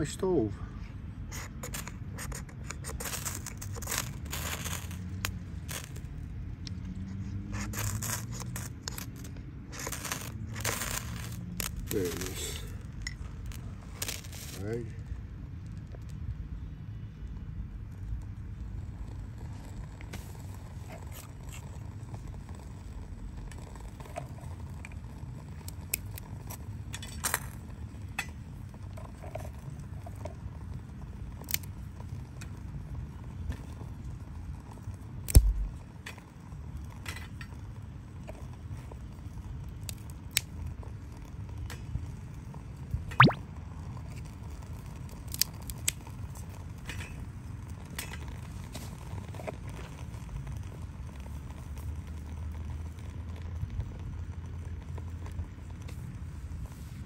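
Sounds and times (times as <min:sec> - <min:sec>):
fire crackling and popping: 0:00.9 - 0:57.0
low steady rumble: 0:35.3 - 0:35.8.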